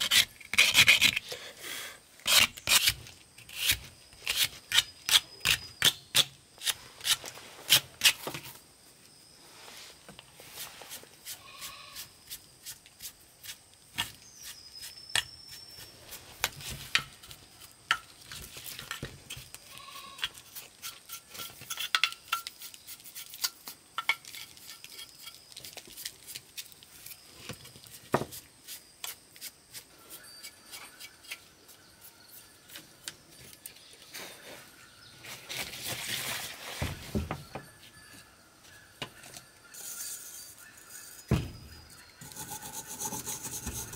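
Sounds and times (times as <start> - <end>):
hand tool clinks and taps: 21.6 - 22.6.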